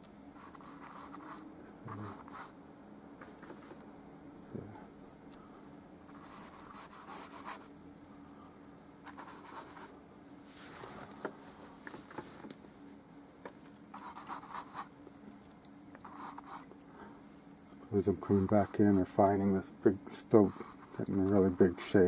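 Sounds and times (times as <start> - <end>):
paintbrush strokes on canvas: 9.1 - 12.4.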